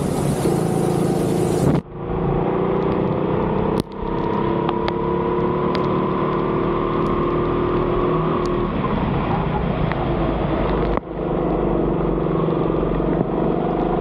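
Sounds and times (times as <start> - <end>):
tyre hiss on wet track: 0.0 - 1.8
go-kart engine running: 0.0 - 7.8.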